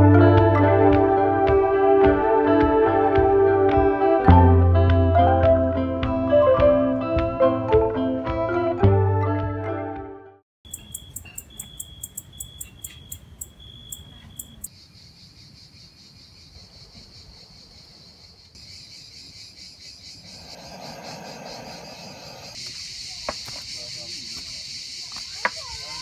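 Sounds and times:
sharp repeating chirp: 10.7s - 14.7s
thin whistling tone: 10.7s - 14.7s
crickets chirping: 10.7s - 26.0s.

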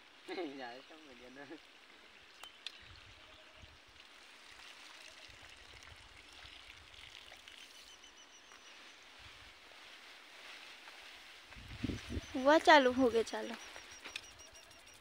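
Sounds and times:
faint outdoor hiss: 0.0s - 15.0s
faint high chirping: 7.5s - 9.4s, 11.7s - 15.0s.

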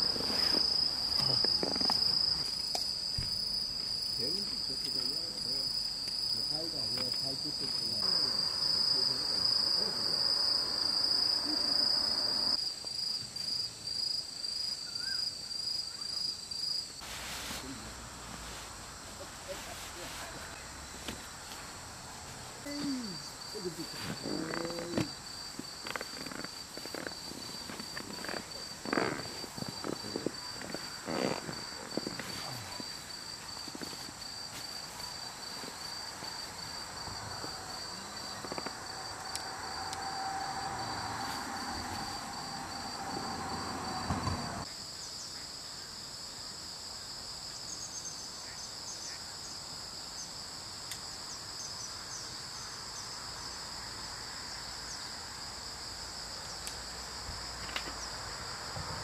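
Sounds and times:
crickets chirping: 0.0s - 59.0s
insect trill: 0.0s - 59.0s
hiss with faint hum: 17.0s - 25.0s.

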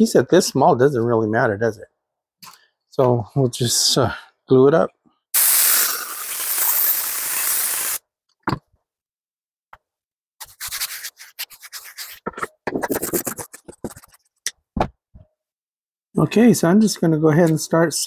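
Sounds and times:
spray gun hissing: 5.4s - 8.0s.

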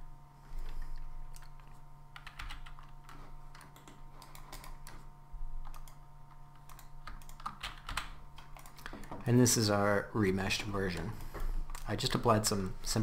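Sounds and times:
faint electrical hum: 0.0s - 13.0s
computer keyboard and mouse clicking: 0.6s - 9.3s, 11.0s - 12.2s.

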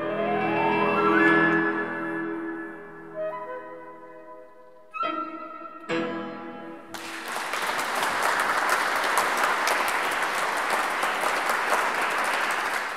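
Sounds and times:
flute note: 0.0s - 6.0s
audience applause: 6.9s - 12.9s.

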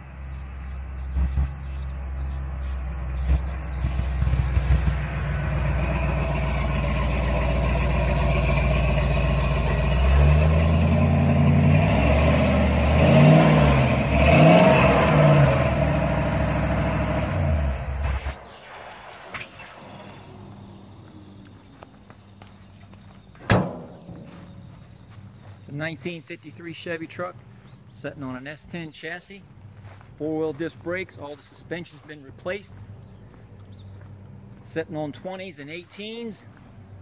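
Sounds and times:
truck engine running and revving: 0.0s - 28.1s.

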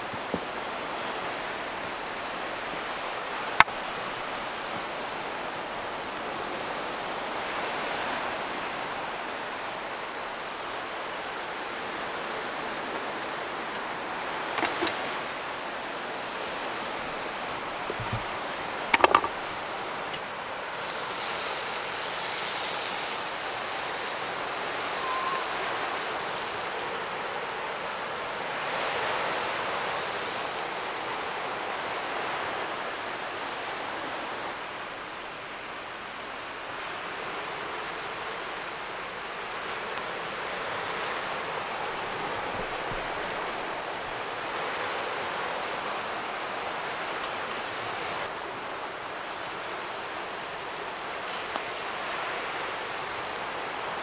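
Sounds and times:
bright hiss: 20.4s - 41.7s, 49.0s - 54.0s.

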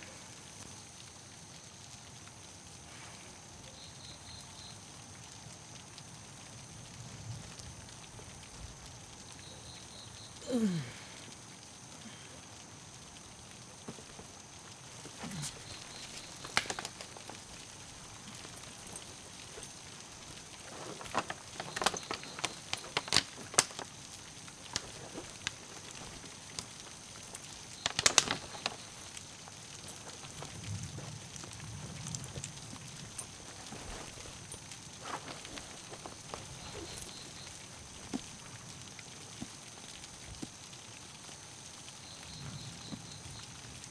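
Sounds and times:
insect chirring: 0.1s - 6.8s, 7.4s - 43.9s
rummaging in cloth bag: 15.0s - 23.9s, 24.5s - 26.6s, 27.3s - 29.1s, 29.8s - 38.3s.

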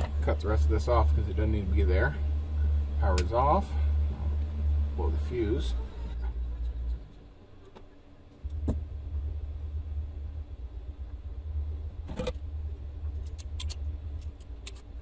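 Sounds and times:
low rumble: 0.0s - 15.0s
wire stripper clicks and snaps: 13.2s - 14.9s.

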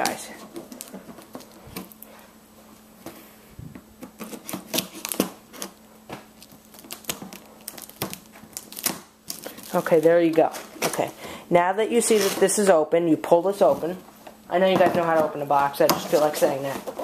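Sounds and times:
fingers scraping tape and cardboard: 4.0s - 5.7s, 12.0s - 12.6s
scissors snipping packing tape: 4.0s - 5.7s, 6.4s - 11.0s.

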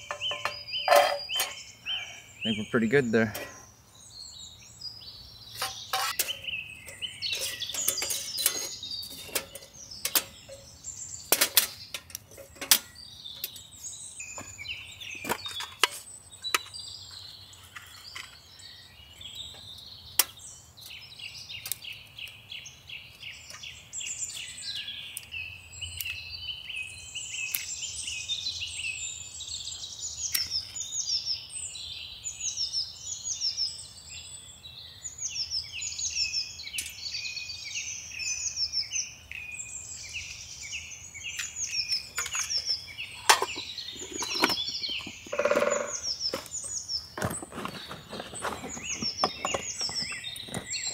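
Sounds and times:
sharp clicks and knocks: 0.0s - 1.6s
birds chirping and singing: 0.0s - 50.9s.

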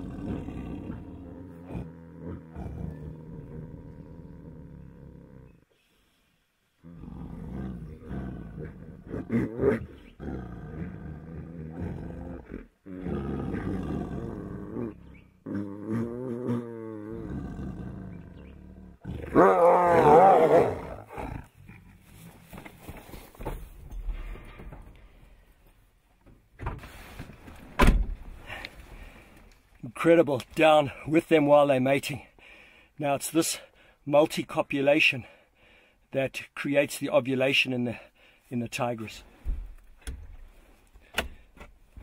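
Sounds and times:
tigers growling and roaring: 0.0s - 5.7s, 6.8s - 22.6s.

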